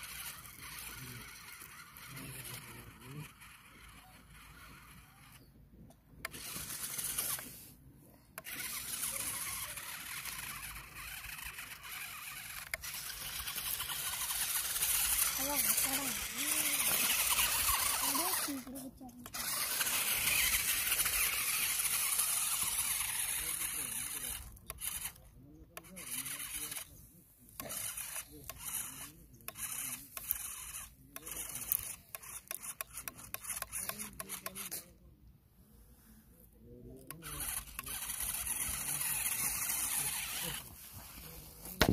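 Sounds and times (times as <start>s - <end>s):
toy tractor drive running: 0.0s - 41.9s
tyres grinding on gravel: 8.5s - 24.2s, 37.2s - 41.9s.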